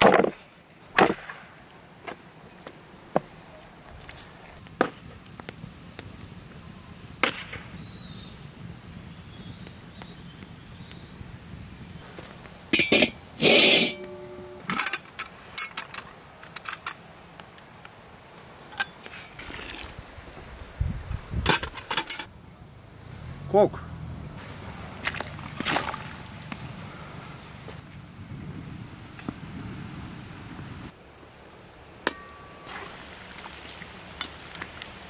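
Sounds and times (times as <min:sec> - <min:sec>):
knocks and metal clinks at pot: 0:12.7 - 0:15.0.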